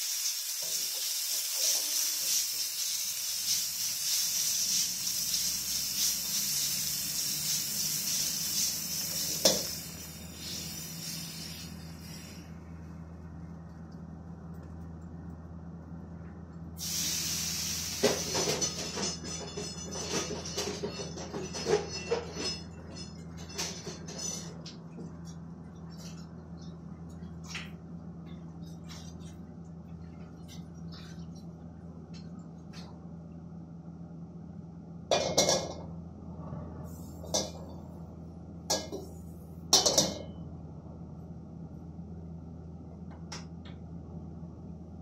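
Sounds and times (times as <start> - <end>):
steady low hum: 4.9 - 45.0
pots and pans clanking: 18.0 - 24.7, 35.1 - 35.9, 37.3 - 37.8, 38.7 - 39.1, 39.7 - 40.3.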